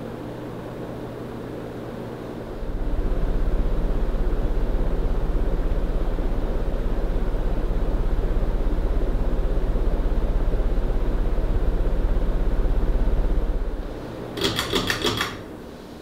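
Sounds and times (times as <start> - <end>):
ceiling fan whooshing: 0.0 - 16.0
quick clicks: 14.4 - 15.4.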